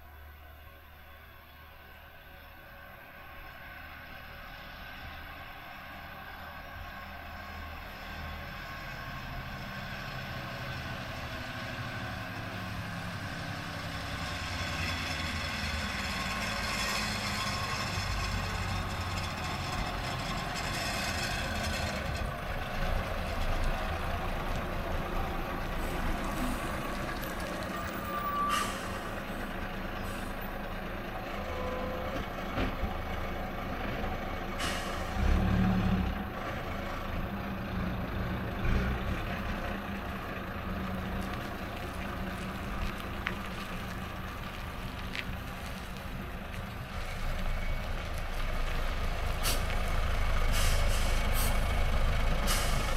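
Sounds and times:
bus diesel engine running: 0.0s - 52.9s
air brake hisses: 28.3s - 29.2s, 34.6s - 35.2s, 49.4s - 49.7s, 50.5s - 51.6s, 52.4s - 52.9s.

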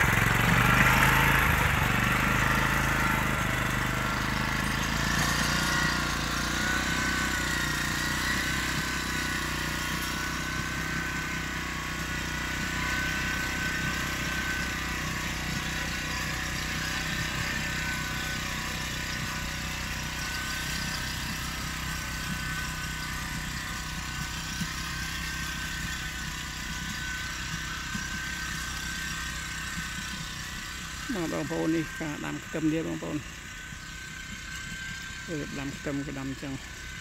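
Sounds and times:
small engine running under load: 0.0s - 37.0s
thin steady whine: 20.1s - 37.0s.

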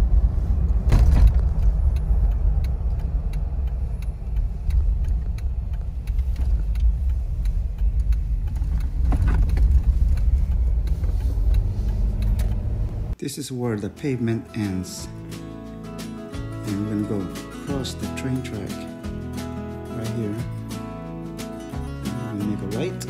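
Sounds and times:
engine and tyres rumbling: 0.0s - 13.2s
light clicks and rattles: 1.2s - 13.0s.

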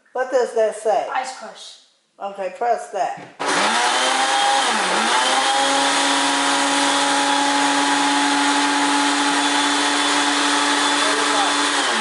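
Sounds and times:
blender motor crushing ice: 3.4s - 12.0s.

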